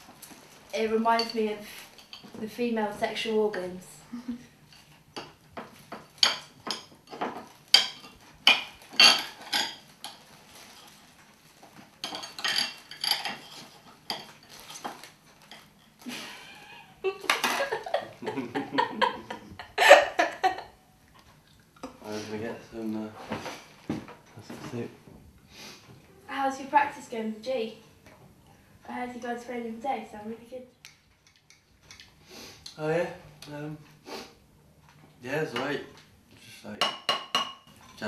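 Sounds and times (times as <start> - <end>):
woman laughing: 16.0 - 20.8.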